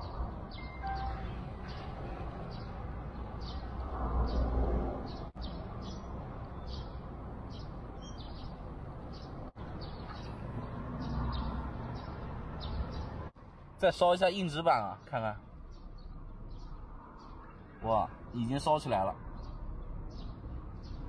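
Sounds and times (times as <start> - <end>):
low outdoor background noise: 0.0 - 21.0
small bird chirping: 5.1 - 13.2.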